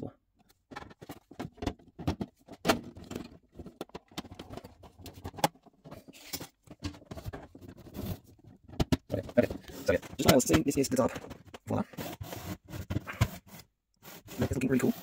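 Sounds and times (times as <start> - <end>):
plastic panels clicking and knocking: 0.4 - 11.8
plastic scrape: 2.8 - 15.0.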